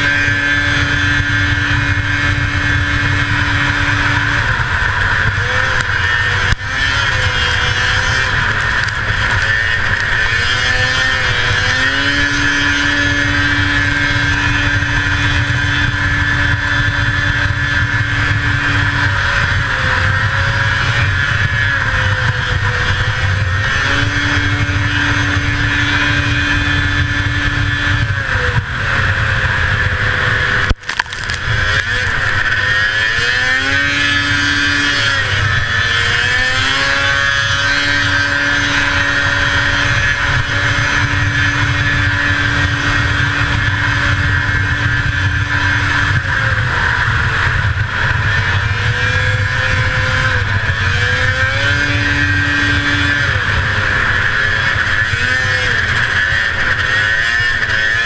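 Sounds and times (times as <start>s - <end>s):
rush of wind and snow: 0.0s - 58.0s
two-stroke snowmobile engine: 0.0s - 58.0s.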